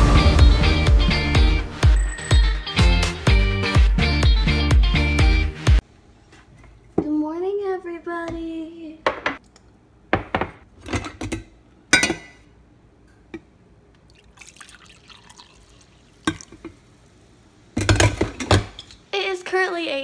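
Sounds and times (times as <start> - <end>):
coffee pouring into mug: 14.1 - 16.7.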